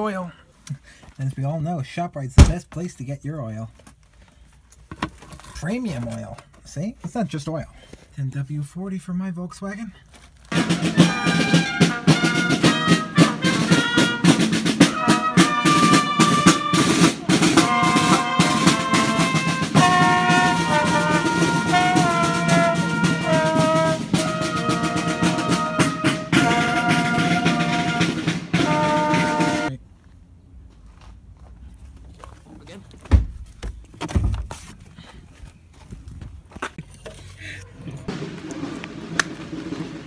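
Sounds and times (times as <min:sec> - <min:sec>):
drum beats: 0:02.4 - 0:02.6, 0:10.5 - 0:29.7, 0:38.1 - 0:40.0
brass band playing: 0:10.5 - 0:29.7, 0:38.1 - 0:40.0.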